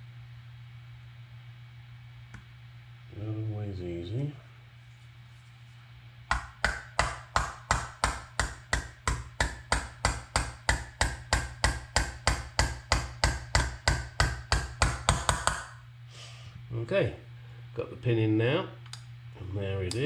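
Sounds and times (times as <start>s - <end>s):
small hammer tapping a pin: 6.3s - 15.8s.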